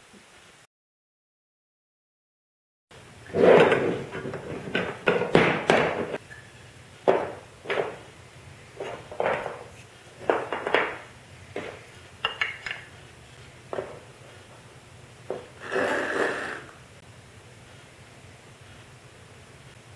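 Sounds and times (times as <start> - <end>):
wooden parts knocking on workbench: 3.5 - 6.2, 7.0 - 8.1, 8.8 - 12.9, 13.7 - 14.0.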